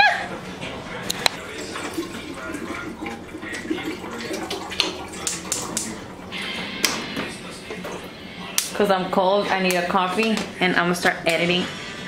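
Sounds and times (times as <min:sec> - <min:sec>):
water glugging into a kettle: 0:01.1 - 0:08.8.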